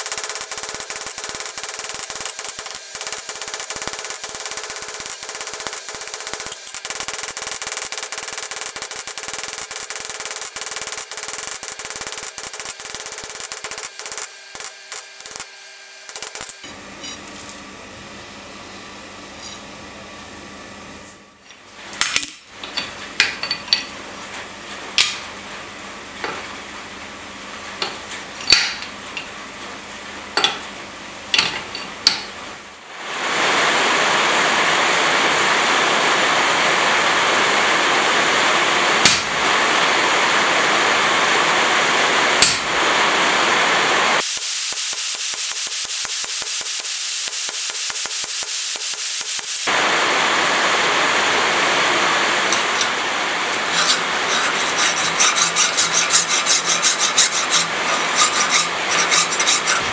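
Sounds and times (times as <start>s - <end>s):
metal tool parts clinking: 0.0s - 15.5s.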